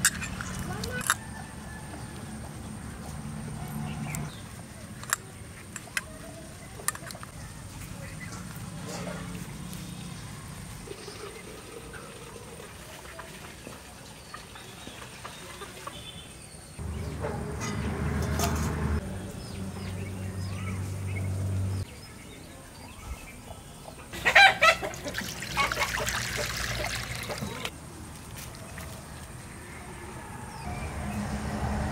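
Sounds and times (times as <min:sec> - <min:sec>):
rooster crowing: 0:01.0 - 0:02.7
chickens clucking: 0:23.4 - 0:27.7.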